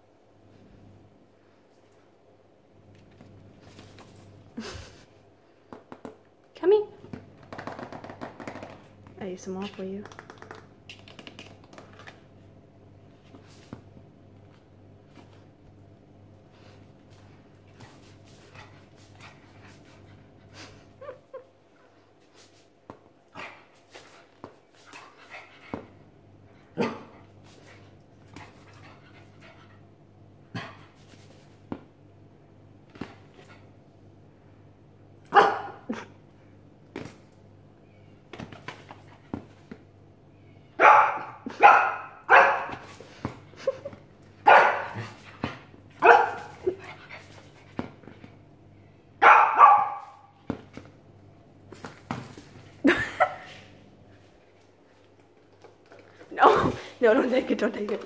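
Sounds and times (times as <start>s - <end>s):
small dog barking: 35.3s - 35.9s, 40.8s - 42.8s, 44.4s - 45.0s, 46.0s - 46.6s, 49.2s - 50.3s.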